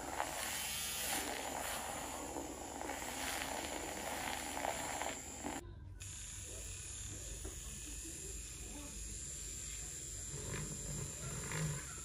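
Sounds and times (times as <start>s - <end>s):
milk frother whirring: 0.0s - 12.0s.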